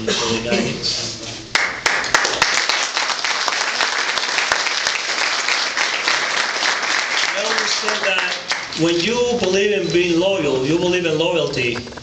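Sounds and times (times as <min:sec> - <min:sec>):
audience applauding: 0:01.5 - 0:09.2.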